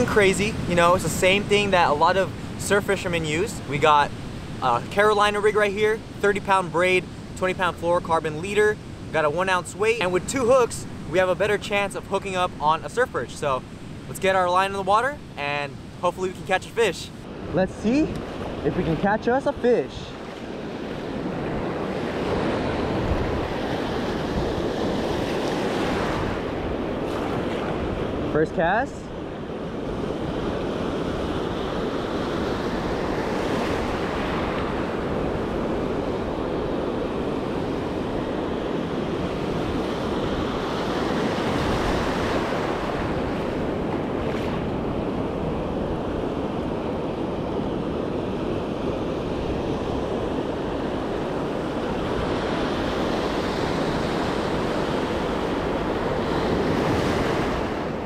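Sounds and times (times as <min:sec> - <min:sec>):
ocean surf breaking: 0:00.0 - 0:58.0
wind buffeting microphone: 0:03.4 - 0:28.3.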